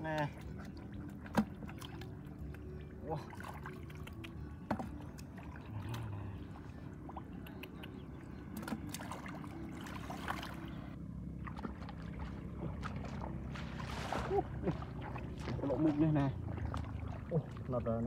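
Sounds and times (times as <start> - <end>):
steady low rumble: 4.2 - 18.0
hands splashing in muddy water: 8.4 - 17.8.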